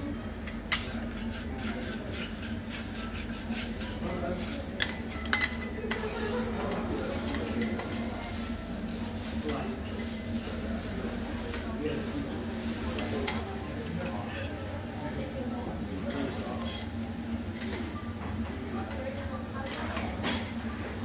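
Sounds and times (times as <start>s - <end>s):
metal spatulas scraping griddle: 0.5s - 8.4s, 16.1s - 17.0s.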